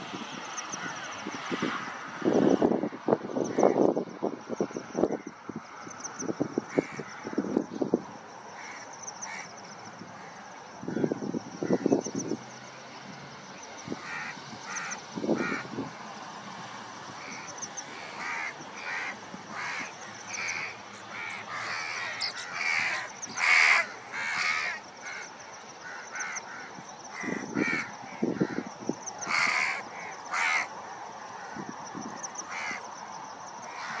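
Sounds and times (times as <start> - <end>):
harsh crow-like bird calls: 0.7 - 1.2, 3.4 - 3.9, 6.6 - 7.6, 8.5 - 12.3, 13.8 - 15.9, 17.2 - 32.9, 33.6 - 34.0.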